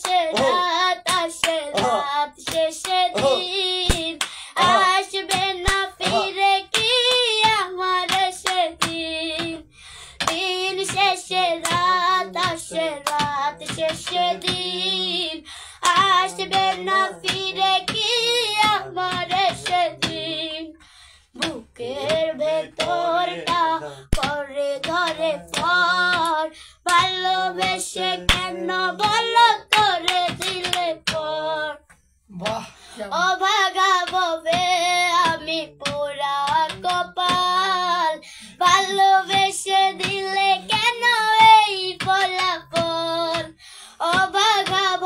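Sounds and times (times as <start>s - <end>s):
hands clapping: 0.0s - 20.6s, 21.4s - 32.7s, 33.7s - 37.9s, 38.6s - 45.0s
girl singing: 0.0s - 31.8s, 32.9s - 45.0s
man singing: 0.2s - 0.7s, 1.7s - 2.3s, 3.0s - 3.6s, 4.6s - 5.0s, 6.0s - 6.6s, 11.4s - 20.6s, 21.4s - 30.0s.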